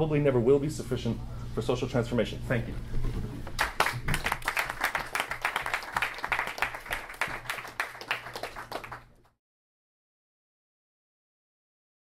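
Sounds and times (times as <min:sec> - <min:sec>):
audience applauding: 0:03.6 - 0:09.2.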